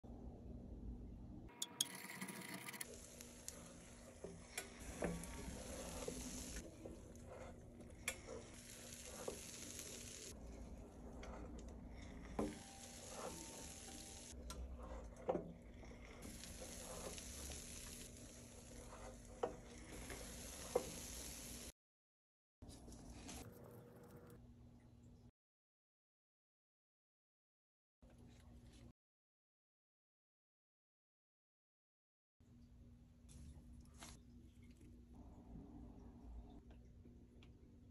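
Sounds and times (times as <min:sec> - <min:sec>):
batter sizzling: 0:01.9 - 0:15.0, 0:15.8 - 0:21.8.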